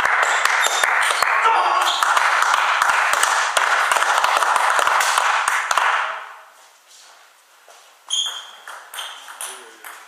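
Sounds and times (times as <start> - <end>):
spectators applauding: 0.0 - 6.1.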